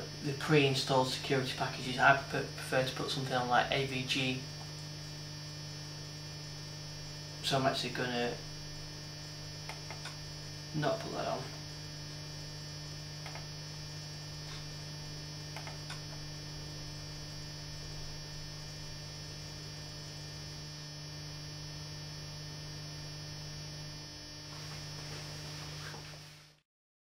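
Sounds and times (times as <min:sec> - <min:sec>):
electrical mains hum: 0:00.0 - 0:26.6.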